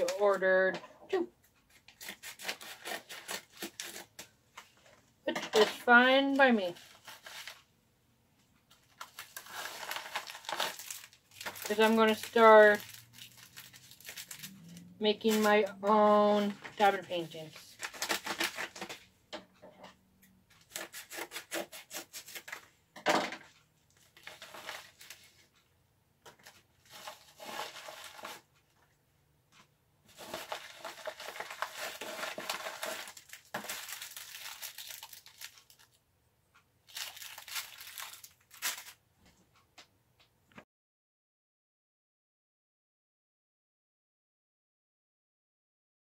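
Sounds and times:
packaging rustling and crinkling: 1.8 - 4.8, 6.6 - 7.7, 8.7 - 15.5, 17.6 - 19.0, 23.9 - 25.5, 26.3 - 28.5, 30.1 - 36.0, 36.9 - 39.0.

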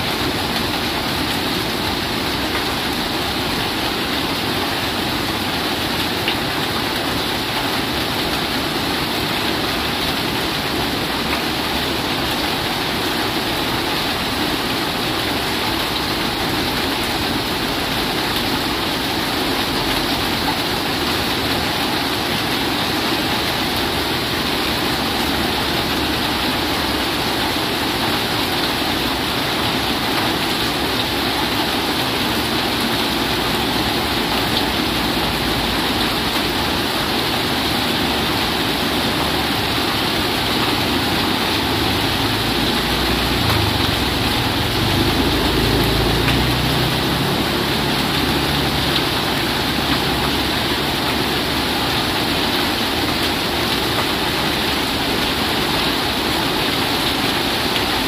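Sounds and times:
heavy rain on corrugated roof: 0.0 - 58.0
rain falling on water: 0.0 - 58.0
water pouring off roof: 0.0 - 58.0.

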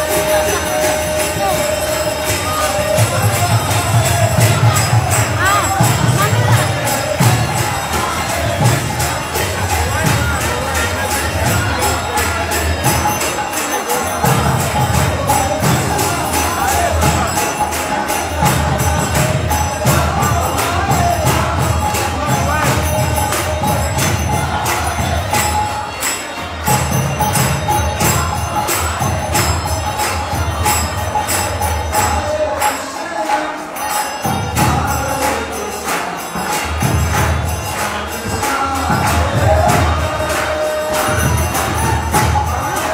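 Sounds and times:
hand cymbals clashing: 0.0 - 42.9
voices singing together: 0.0 - 42.9
drum beat: 1.2 - 25.6, 36.6 - 42.9.

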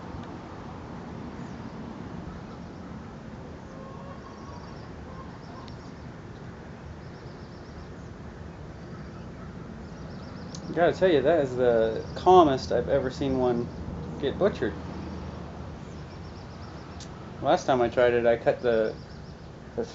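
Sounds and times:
rapid bird trills: 3.6 - 6.2, 7.0 - 12.6, 13.4 - 19.9
low outdoor rumble: 7.9 - 19.9.

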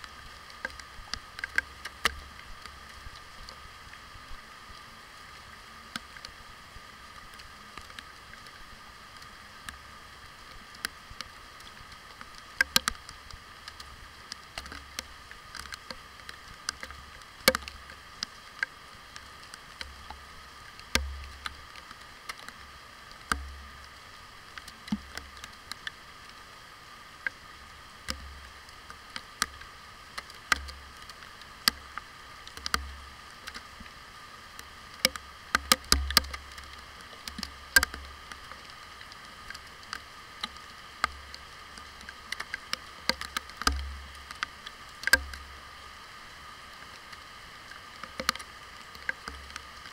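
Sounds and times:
rain hiss: 0.0 - 49.9
raindrops tapping on housing: 35.0 - 38.8.

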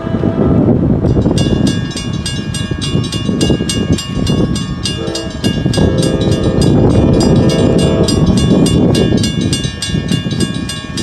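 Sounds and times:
locomotive horn: 0.0 - 0.8, 4.9 - 8.4
mechanical crossing bell ringing: 1.1 - 11.0.

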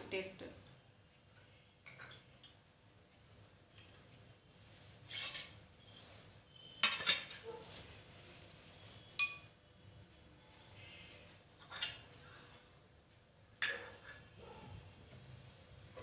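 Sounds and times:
metal utensils clattering: 6.8 - 7.6.

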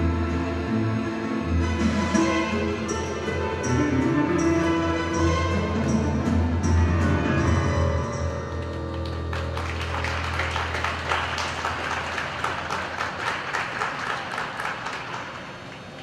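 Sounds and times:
audience applause: 8.6 - 16.0.

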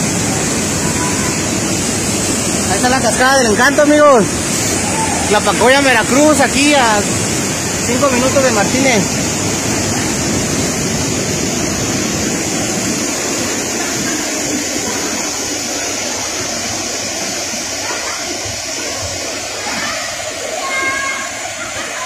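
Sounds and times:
waterfall rushing: 0.0 - 22.0
whitewater churning: 0.0 - 22.0.

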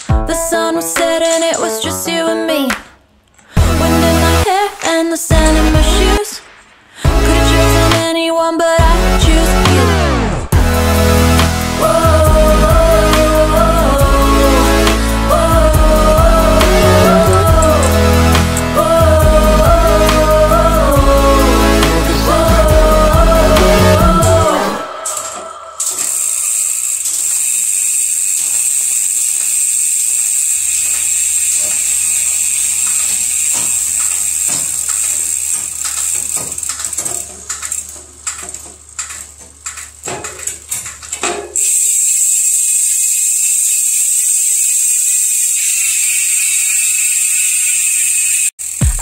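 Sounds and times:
bicycle freehub ratcheting buzz: 10.6 - 49.0
bicycle chain irregular clicking: 11.5 - 49.0.

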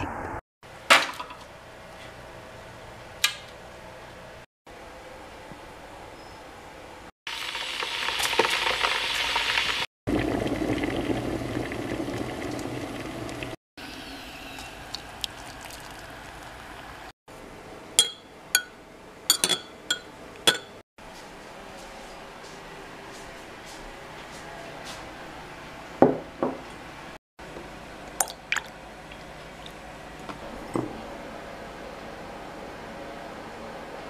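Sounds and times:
hot water pouring into mug: 7.3 - 16.8
teaspoon clinking against mug: 19.3 - 20.8.

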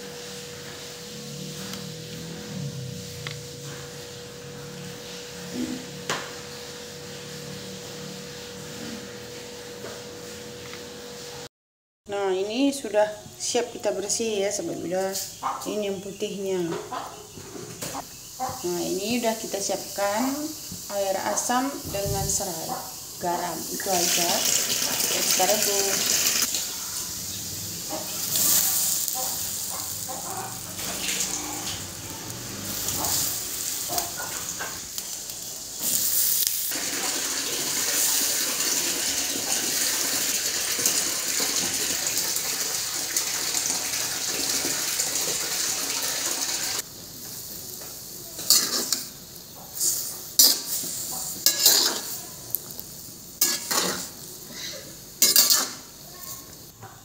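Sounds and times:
hiss from wok: 0.0 - 3.1, 18.0 - 56.8.

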